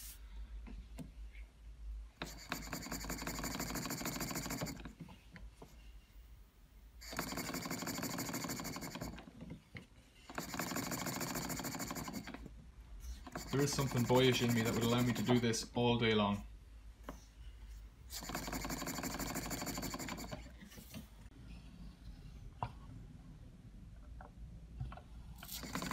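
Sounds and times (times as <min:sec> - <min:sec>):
mechanical clatter: 0:25.4 - 0:25.9.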